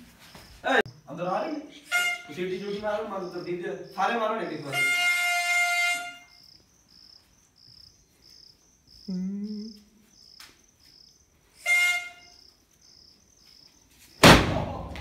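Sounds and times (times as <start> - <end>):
insect chirping: 0.0 - 14.3
shrill whistle note: 1.9 - 2.4, 11.6 - 12.4.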